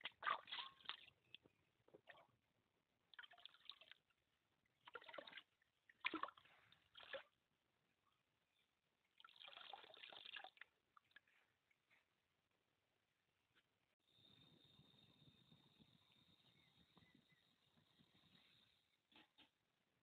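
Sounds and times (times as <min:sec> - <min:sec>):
water pouring into stream: 0:04.9 - 0:07.2, 0:09.2 - 0:10.7.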